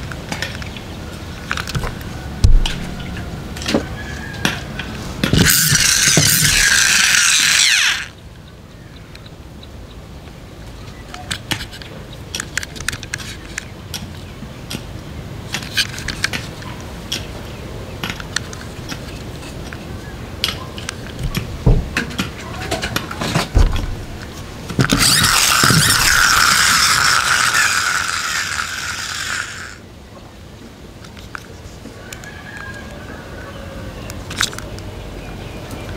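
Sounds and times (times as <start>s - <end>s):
plastic toy wheels clicking: 5.3s - 8.2s, 24.8s - 29.8s
toy wheel gearing whirring: 5.3s - 8.2s, 24.8s - 29.8s.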